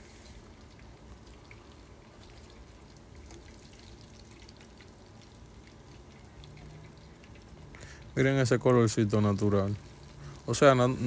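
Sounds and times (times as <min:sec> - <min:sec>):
hot oil crackling in a pan: 0:00.0 - 0:11.0
oil popping: 0:00.0 - 0:11.0.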